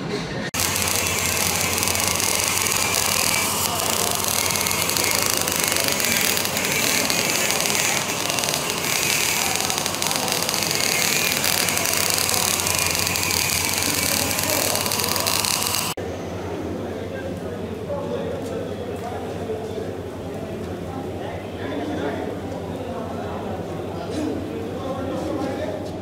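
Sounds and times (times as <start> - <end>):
arc welding crackling and sizzling: 0.6 - 16.0.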